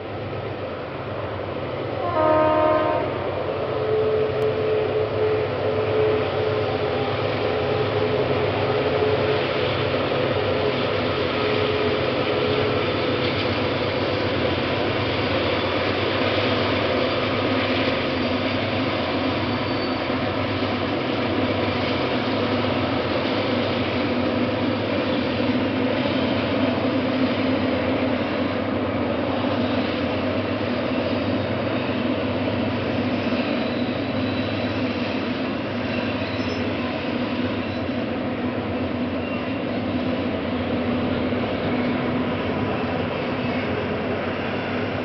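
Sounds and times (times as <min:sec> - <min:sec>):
freight wagons rumbling on rails: 0:00.0 - 0:45.0
multi-tone train horn blast: 0:02.0 - 0:06.5.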